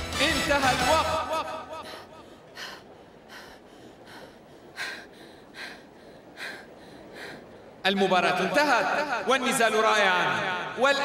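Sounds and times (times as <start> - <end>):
heavy breathy panting: 1.8 - 7.8.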